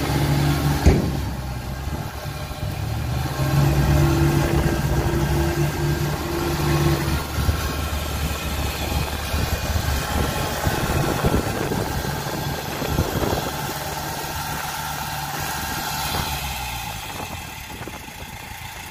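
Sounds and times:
diesel engines under load: 0.0s - 18.9s
sharp knocks: 0.8s - 1.5s.

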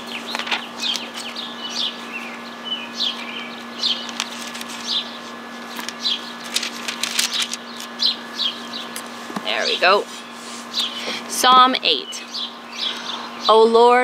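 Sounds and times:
birds chirping: 0.0s - 14.0s
faint steady hum: 0.0s - 14.0s
pages being leafed through: 0.1s - 1.4s, 3.9s - 8.0s.

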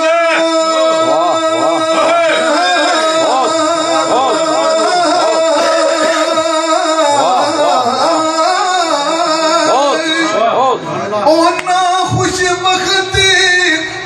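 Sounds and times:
man singing ornamented melody: 0.0s - 14.0s
steady held drone: 0.1s - 10.6s.

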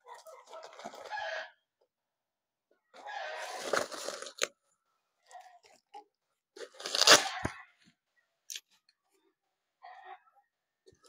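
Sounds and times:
bubble wrap crinkling: 3.4s - 4.5s, 6.6s - 7.5s.

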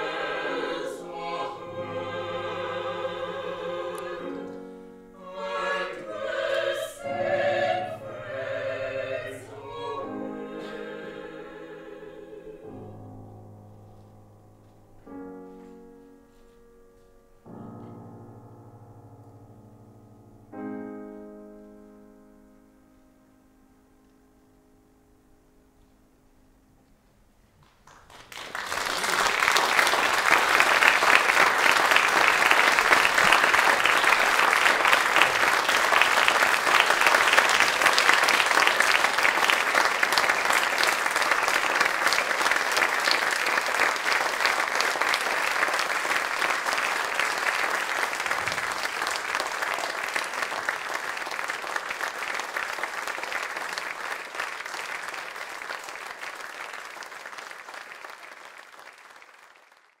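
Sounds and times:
audience applauding: 27.6s - 60.0s.

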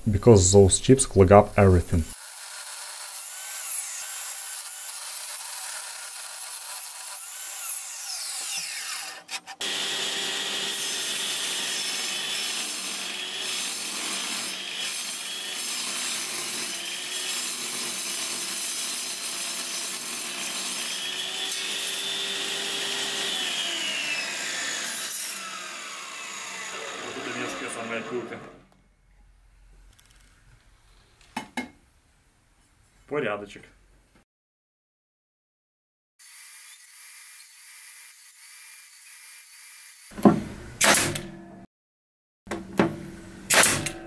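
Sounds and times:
table saw cutting metal: 2.2s - 28.6s, 36.2s - 41.7s, 42.8s - 44.0s.

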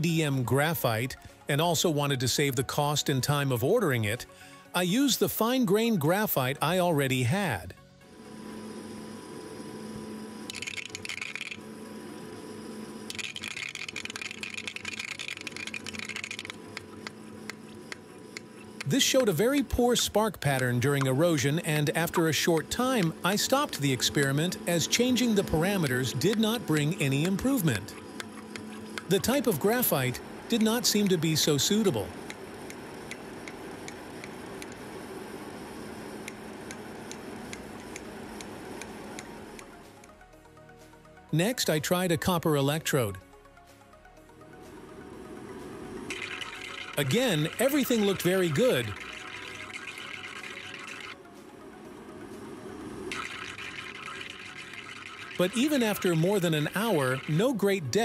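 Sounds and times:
steady low hum: 7.6s - 41.3s, 43.0s - 58.0s
electric sparks crackling: 10.5s - 11.6s, 13.1s - 18.0s, 46.1s - 51.2s, 53.1s - 58.0s
sharp electrical sparking clicks: 10.5s - 11.6s, 13.1s - 19.3s.

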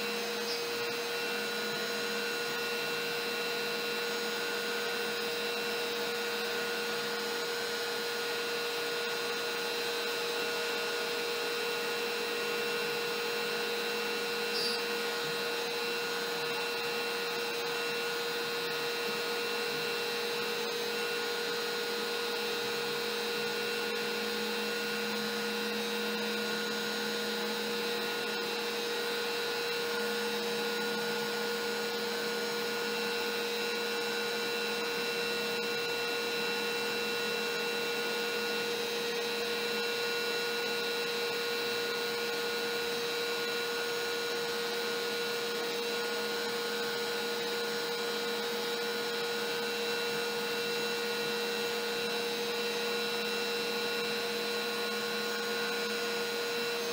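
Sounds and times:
bit cutting wood: 0.0s - 1.1s, 14.4s - 16.6s
router motor whine: 0.0s - 56.9s.

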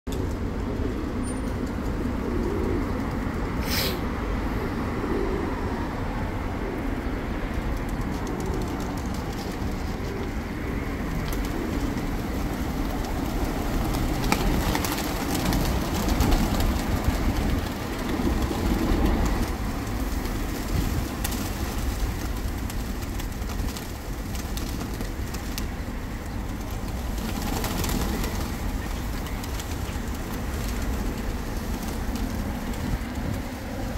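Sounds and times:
pigeons cooing: 2.0s - 20.4s
wings flapping: 7.6s - 33.9s.

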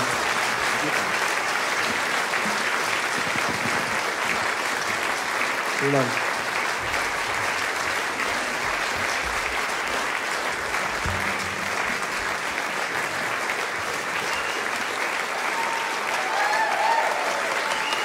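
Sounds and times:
audience applauding: 0.0s - 18.0s
short low thud: 11.0s - 12.8s.

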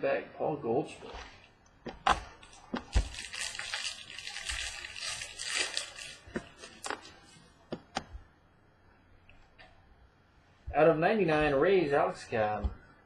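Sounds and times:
wrapper crinkling and rustling: 2.3s - 7.5s.

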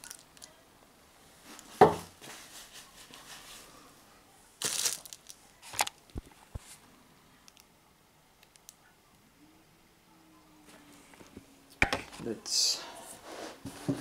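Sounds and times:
plastic wrap crinkling: 4.6s - 6.8s.

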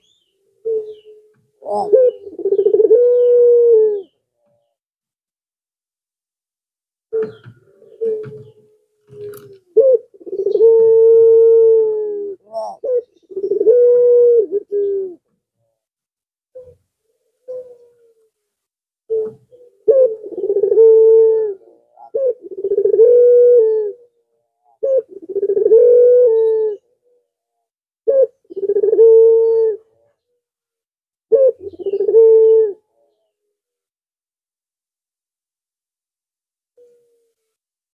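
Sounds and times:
dove cooing: 0.0s - 4.8s, 7.1s - 15.8s, 16.5s - 16.8s, 17.4s - 18.3s, 19.1s - 27.2s, 28.0s - 30.2s, 31.3s - 33.2s, 36.8s - 37.4s.

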